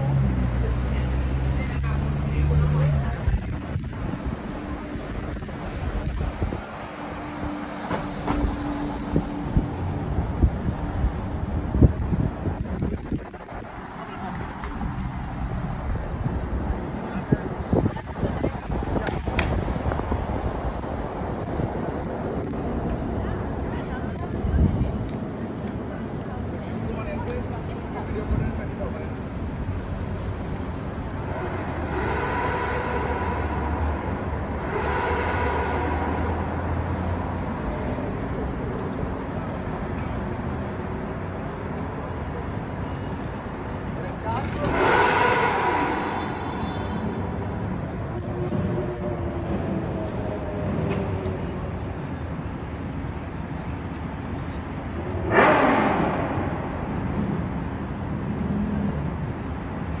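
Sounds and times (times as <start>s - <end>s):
engine and tyre rumble: 0.0s - 60.0s.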